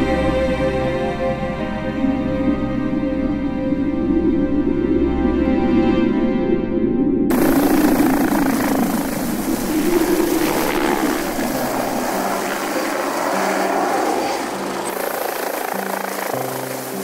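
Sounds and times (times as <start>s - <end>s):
low sustained background music: 0.0s - 17.0s
helicopter engine and rotor: 7.3s - 17.0s.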